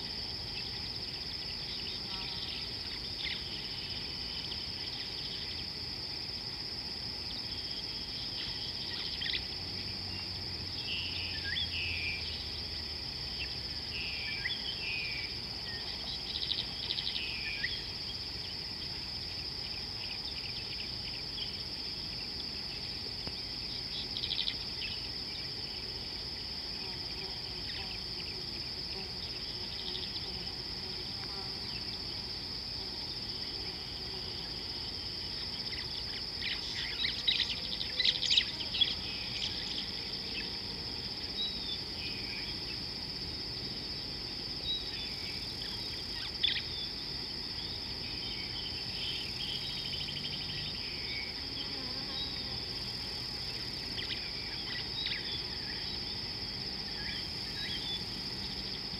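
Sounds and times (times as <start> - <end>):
insect chorus drone: 0.0 - 58.9.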